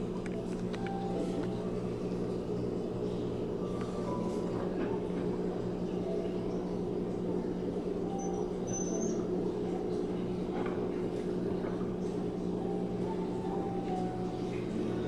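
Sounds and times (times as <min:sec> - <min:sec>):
washing machine humming: 0:00.0 - 0:15.0
faint high squeaks: 0:08.2 - 0:09.3.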